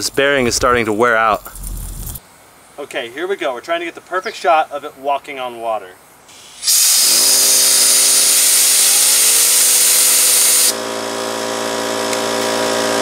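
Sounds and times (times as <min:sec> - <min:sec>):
compressed air hissing: 0:06.3 - 0:10.8.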